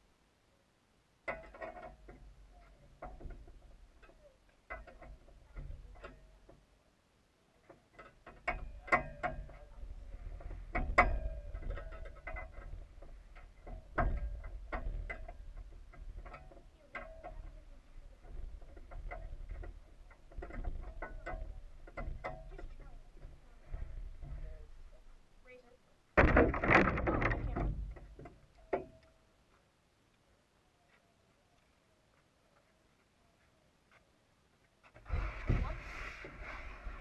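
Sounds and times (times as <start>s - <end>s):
clicks and knocks on camera: 26.2s - 29.2s.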